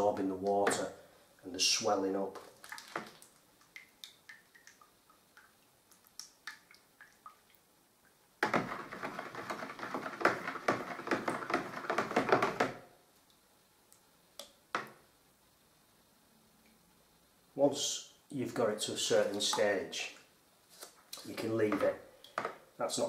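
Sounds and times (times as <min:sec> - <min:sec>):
stick stirring paste in plastic bucket: 0:08.4 - 0:12.9, 0:18.5 - 0:20.2, 0:20.8 - 0:22.6.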